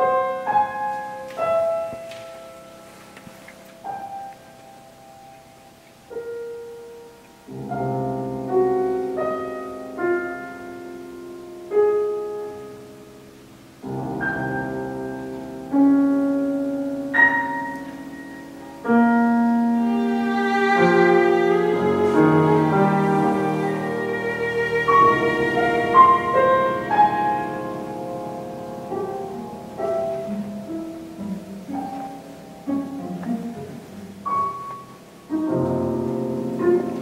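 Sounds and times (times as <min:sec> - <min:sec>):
piano chords: 0:00.0 - 0:37.0
bowed cello: 0:13.8 - 0:37.0.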